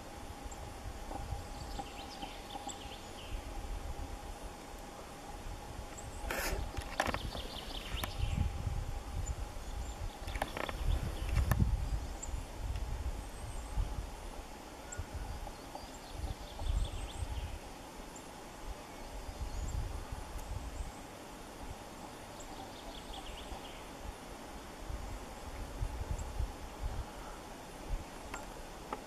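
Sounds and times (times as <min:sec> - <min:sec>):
faint high bird calls: 0:01.4 - 0:03.5, 0:14.7 - 0:21.2, 0:27.0 - 0:28.6.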